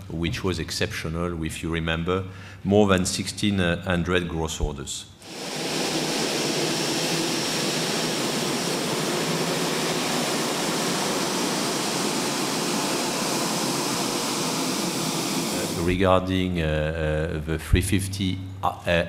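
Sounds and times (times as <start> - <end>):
jet engines at taxi power: 5.2 - 15.9.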